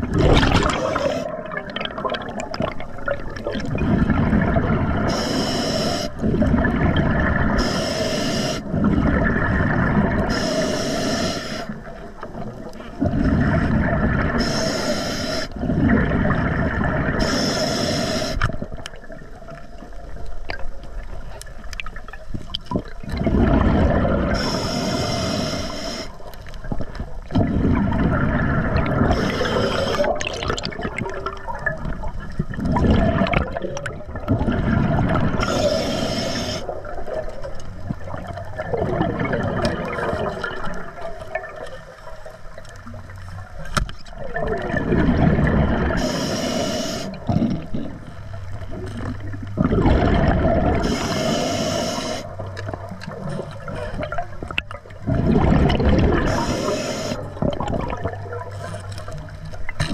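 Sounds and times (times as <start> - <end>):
gurgling exhaled bubbles: 0.0 - 10.8, 11.7 - 59.9
hissing regulator inhalations: 0.6 - 1.4, 5.1 - 6.2, 7.6 - 8.7, 10.3 - 11.9, 13.1 - 15.6, 17.2 - 18.6, 24.4 - 26.4, 29.0 - 30.2, 35.4 - 36.8, 45.9 - 47.6, 50.7 - 52.5, 56.2 - 57.4.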